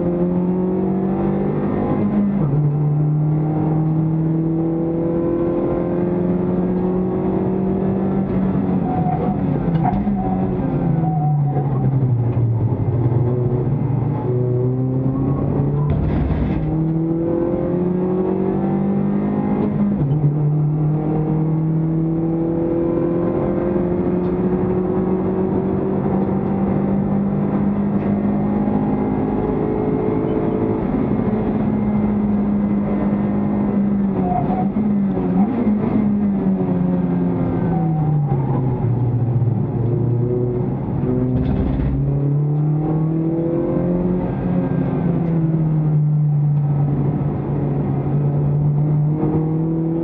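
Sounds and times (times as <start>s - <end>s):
car engine accelerating: 0.0s - 50.0s
road noise: 0.0s - 50.0s.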